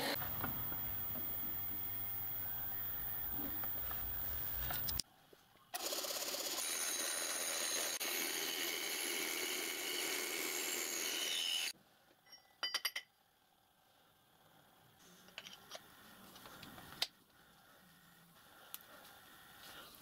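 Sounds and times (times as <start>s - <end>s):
saw cutting metal: 6.2s - 11.8s.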